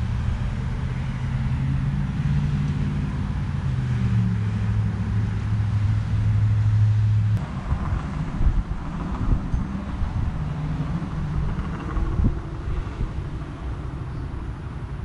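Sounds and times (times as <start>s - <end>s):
motor engine hum: 0.0s - 15.0s
low rumble: 7.3s - 14.4s.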